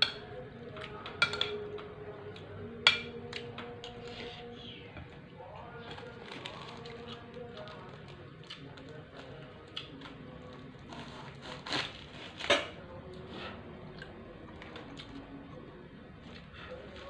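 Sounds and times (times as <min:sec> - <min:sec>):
knife cutting food: 0:10.9 - 0:13.6.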